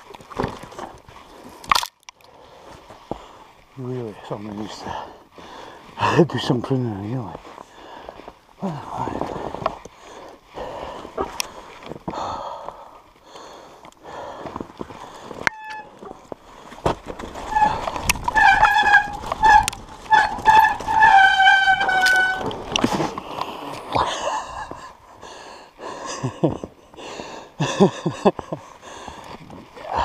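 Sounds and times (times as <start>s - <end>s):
bike clattering over snowy trail: 14.3s - 25.0s
bike disc brakes squealing: 15.5s - 16.2s, 17.4s - 22.6s.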